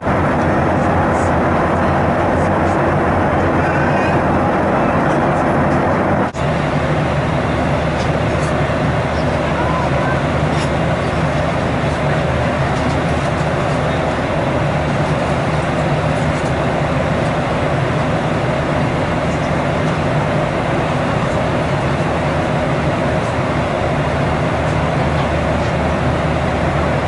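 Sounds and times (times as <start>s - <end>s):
air rushing along airliner fuselage: 0.0s - 27.0s
low hum of jet engines: 0.0s - 27.0s.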